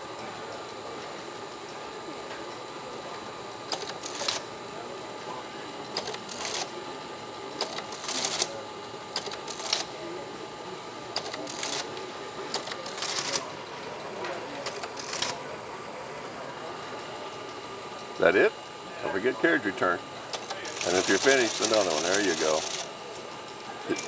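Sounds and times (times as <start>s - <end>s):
teletype machine clattering: 2.5s - 15.5s, 19.1s - 24.0s.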